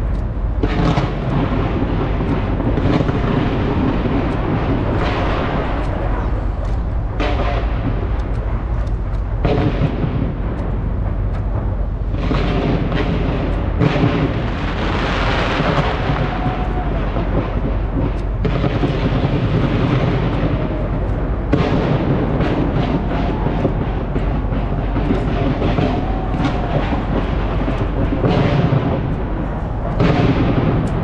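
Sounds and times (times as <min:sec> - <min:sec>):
fireworks booming and crackling: 0:00.0 - 0:31.0.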